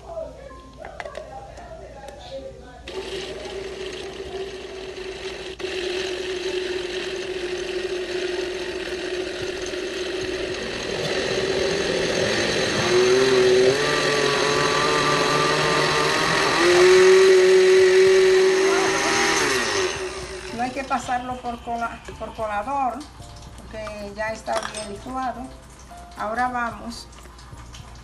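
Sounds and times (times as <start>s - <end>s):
blender motor running: 2.9s - 23.0s.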